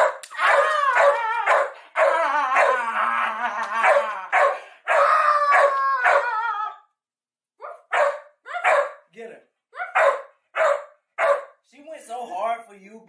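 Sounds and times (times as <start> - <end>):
dog barking: 0.0 - 2.1, 3.8 - 6.3, 7.6 - 9.1, 9.8 - 11.6
dog howling: 0.4 - 6.9.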